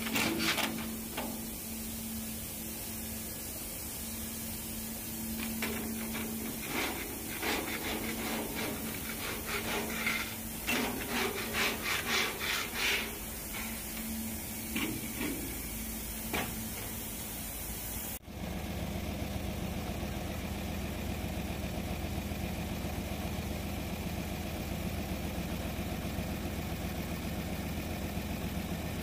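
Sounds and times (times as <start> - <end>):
brush scrubbing rusty steel: 0.0 - 17.9
low steady hum: 0.0 - 22.6.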